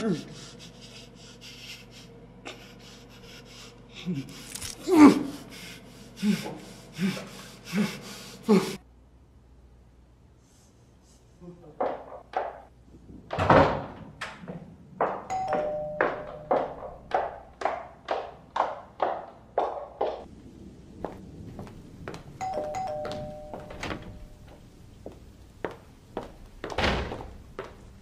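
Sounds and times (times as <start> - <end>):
two-tone doorbell chime: 15.3 - 16.8, 22.4 - 24.5.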